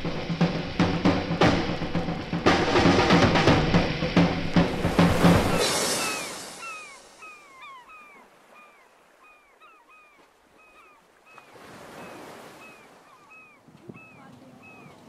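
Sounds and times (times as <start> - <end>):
bird chirps: 5.5 - 15.0.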